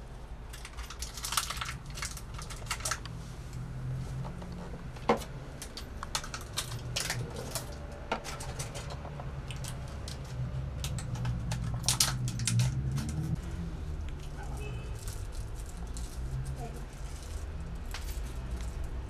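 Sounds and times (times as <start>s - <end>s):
small parts and tools clicking: 0.5s - 3.6s, 4.5s - 13.4s, 14.0s - 19.0s.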